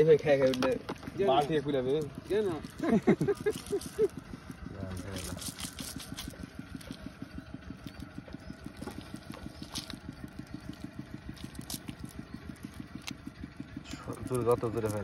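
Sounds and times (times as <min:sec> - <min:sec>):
small engine idling: 0:00.0 - 0:15.0.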